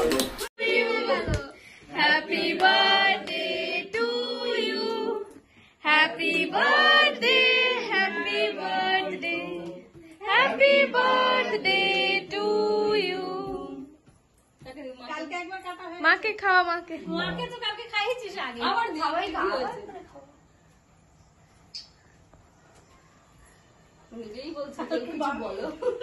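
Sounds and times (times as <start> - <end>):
voices singing unaccompanied: 0.0 - 14.3.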